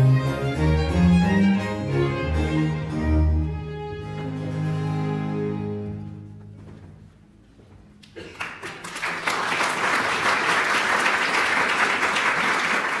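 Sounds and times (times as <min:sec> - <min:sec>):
audience applause: 0:08.1 - 0:13.0.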